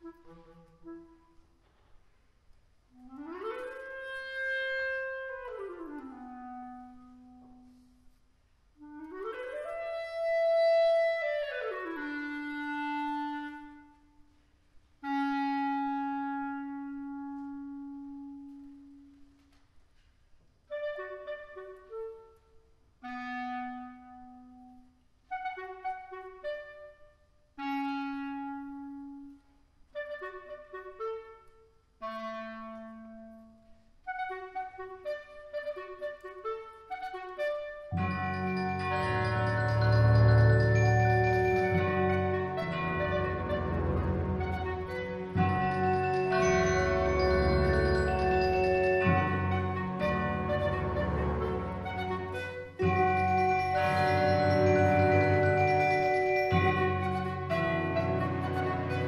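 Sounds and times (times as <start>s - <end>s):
clarinet solo: 0.0s - 1.8s, 2.9s - 8.0s, 8.8s - 14.4s, 15.0s - 19.5s, 20.7s - 59.0s.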